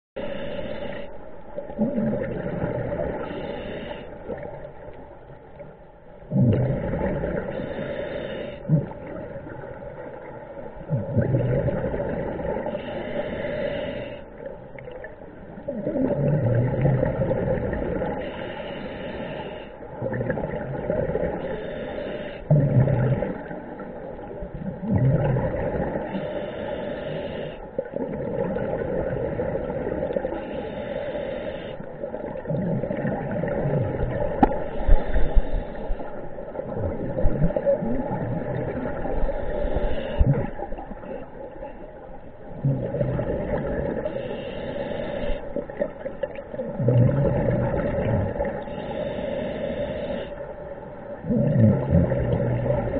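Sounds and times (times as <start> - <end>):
diver breathing through regulator: 0.2 - 4.5, 6.3 - 9.2, 11.1 - 14.5, 16.0 - 20.4, 21.1 - 23.5, 25.2 - 27.8, 30.2 - 36.8, 38.5 - 41.8, 42.8 - 46.0, 46.7 - 50.6
exhaled bubbles rushing: 1.7 - 3.2, 22.6 - 26.1, 32.2 - 35.6, 36.6 - 40.9, 42.6 - 44.1, 45.7 - 48.6.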